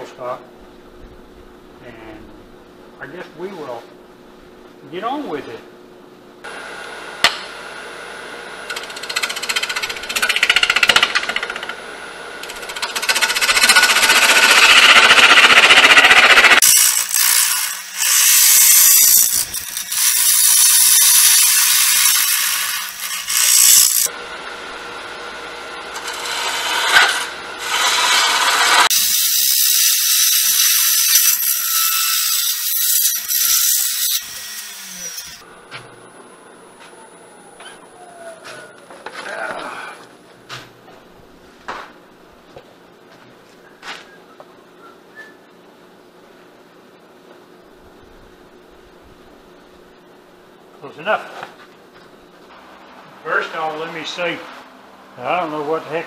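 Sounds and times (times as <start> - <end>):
lathe tool scraping wood: 8.6 - 24.1, 25.4 - 35.4.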